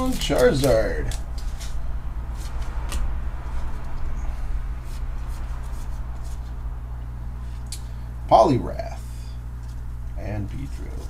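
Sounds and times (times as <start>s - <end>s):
trading cards flipped by hand: 0.0s - 4.2s, 4.8s - 6.6s
steady low hum: 0.0s - 11.0s.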